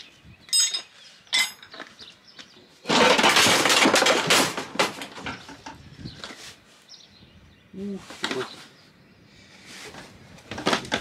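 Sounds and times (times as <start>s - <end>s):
metal tools clinking: 0.5s - 1.8s
scrap metal clattering: 2.9s - 6.5s.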